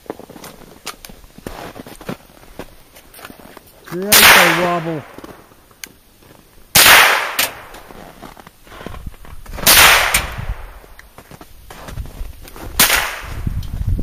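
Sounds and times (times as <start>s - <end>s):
rifle shots: 4.0s - 5.2s, 6.7s - 7.8s, 9.6s - 10.8s, 12.8s - 13.4s.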